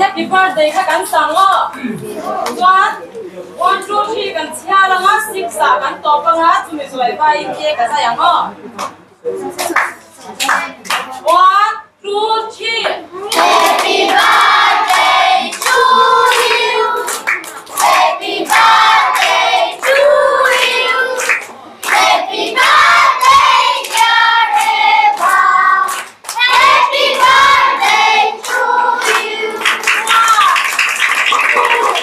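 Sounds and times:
hand clapping: 9.6 - 11.4, 13.3 - 22.0, 23.2 - 26.6, 28.4 - 32.0
group singing in chorus: 13.4 - 29.9.

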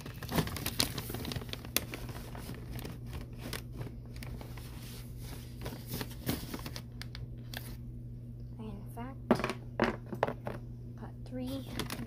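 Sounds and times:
plastic pouch crinkling: 0.0 - 7.8
low steady hum: 0.0 - 12.0.

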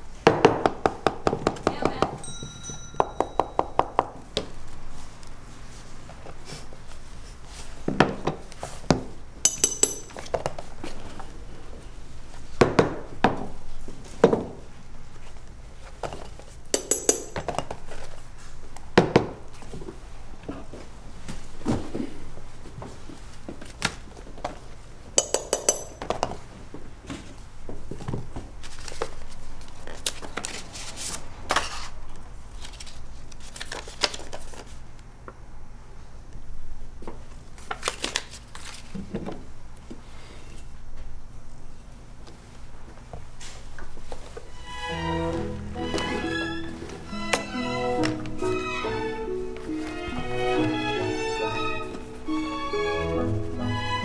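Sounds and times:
bright metallic clinks: 2.2 - 3.8, 9.4 - 10.2, 16.8 - 17.5, 25.2 - 26.0.

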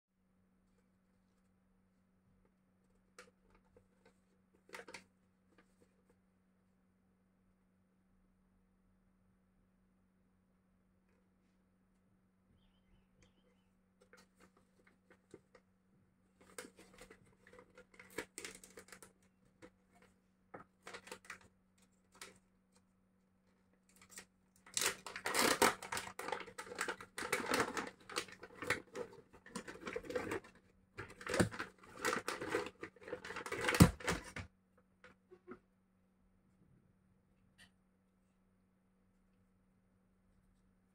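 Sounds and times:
plastic packet crinkling: 23.9 - 34.4.

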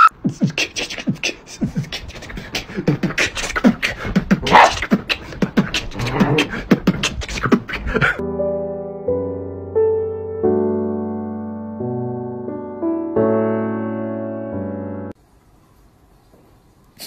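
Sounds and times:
soft piano music: 8.2 - 15.2.

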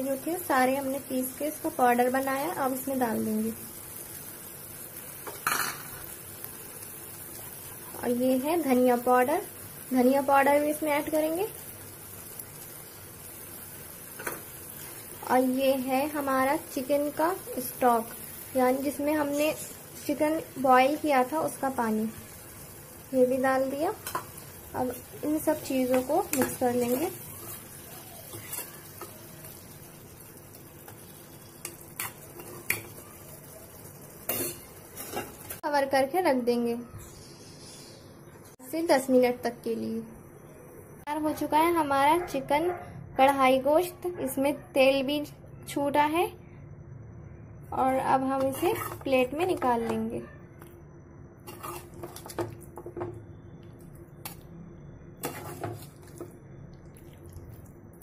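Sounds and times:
curry sizzling in a pan: 0.0 - 36.2, 47.9 - 50.0, 51.4 - 58.0
metal spoon scraping pan and plate: 28.3 - 29.1, 31.6 - 33.0, 34.3 - 35.6, 48.4 - 49.1, 51.4 - 52.6, 55.2 - 56.2.

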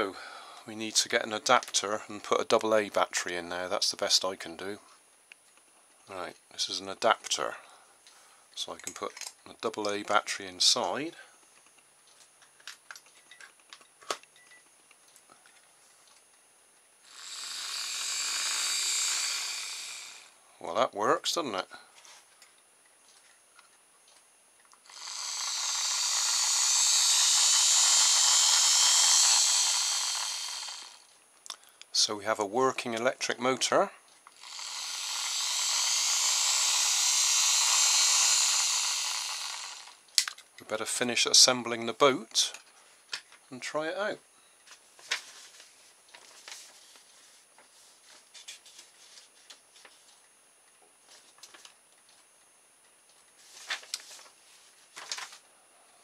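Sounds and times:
small electric motor whirring: 17.0 - 20.4, 24.8 - 31.1, 34.3 - 40.1
paper pages rustling: 44.8 - 50.2, 53.4 - 55.4.

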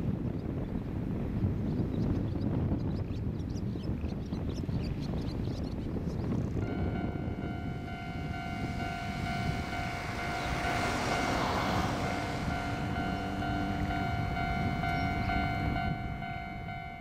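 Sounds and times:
diesel railcar rumbling: 6.2 - 17.0
brakes squealing: 6.6 - 17.0.

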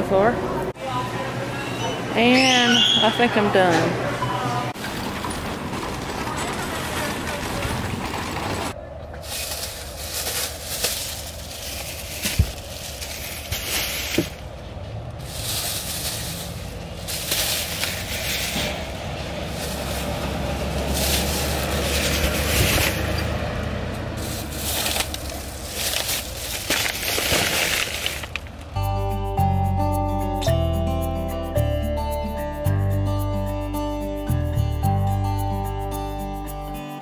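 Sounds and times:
plastic bags rustling: 5.2 - 23.2, 24.2 - 28.7.

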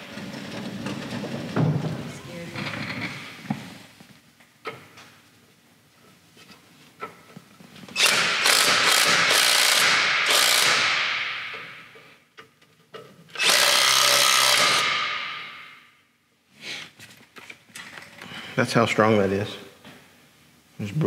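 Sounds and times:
impact driver hammering on bolt: 8.0 - 11.8.

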